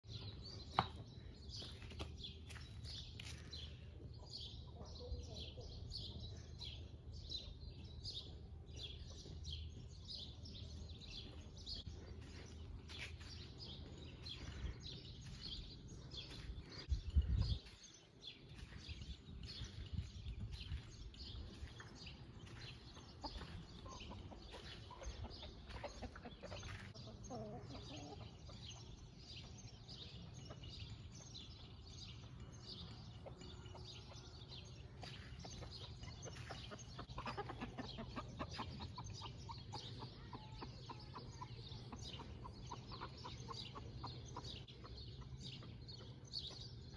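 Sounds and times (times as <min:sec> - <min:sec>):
small birds chirping: 0:00.0 - 0:46.9
chickens clucking: 0:03.2 - 0:06.9, 0:08.8 - 0:31.3, 0:32.3 - 0:46.8.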